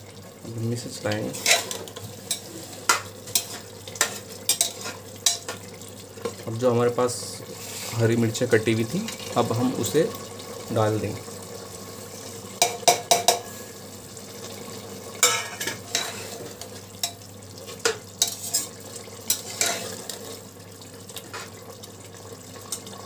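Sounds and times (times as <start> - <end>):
low sizzle of cooking: 0.0 - 23.0
metal spoon scraping a pot: 1.3 - 5.5, 15.2 - 17.2, 17.8 - 20.0.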